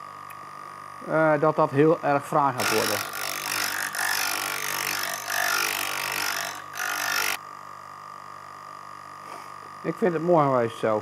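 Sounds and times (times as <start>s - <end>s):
grinder motor hum: 2.4s - 7.4s
steel grinding on stone: 2.6s - 7.4s.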